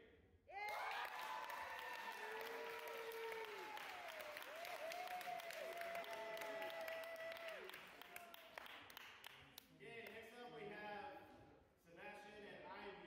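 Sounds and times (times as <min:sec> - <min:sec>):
audience applauding: 0:00.6 - 0:09.6.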